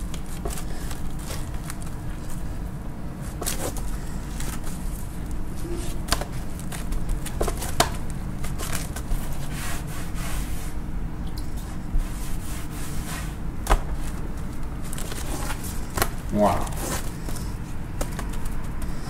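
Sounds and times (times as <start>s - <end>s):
steady low hum: 0.0s - 19.0s
cloth wiping board: 9.1s - 10.8s, 11.6s - 14.2s.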